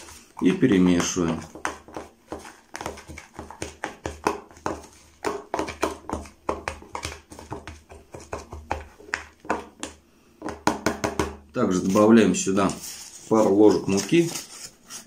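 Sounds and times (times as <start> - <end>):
spoon scraping plastic container: 0.0 - 3.8.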